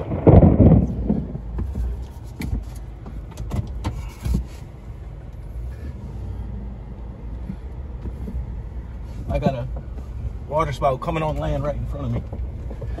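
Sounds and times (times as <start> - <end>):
low rumble in truck cab: 0.0 - 13.0.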